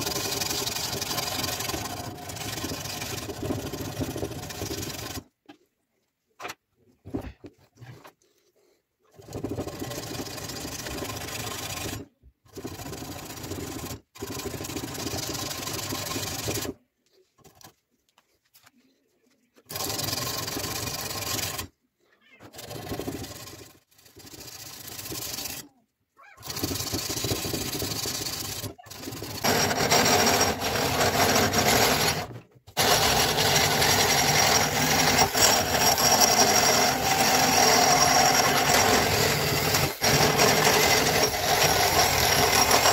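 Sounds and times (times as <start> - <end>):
rotary tool grinding whine: 0.0 - 5.3, 9.1 - 16.8, 26.4 - 42.9.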